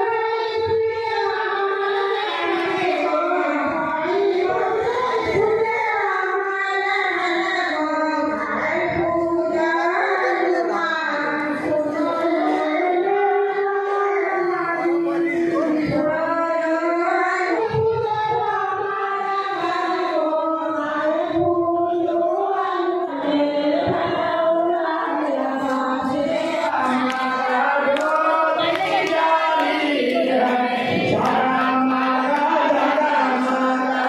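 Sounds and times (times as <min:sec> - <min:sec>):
group singing a devotional hymn: 0:00.0 - 0:34.0
sharp claps: 0:26.8 - 0:30.2.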